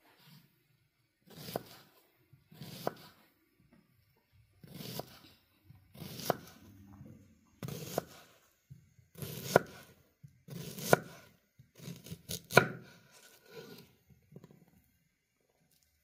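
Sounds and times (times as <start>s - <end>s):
knife cutting onion on board: 1.2s - 3.2s, 4.6s - 5.3s, 5.9s - 6.7s, 7.6s - 14.7s.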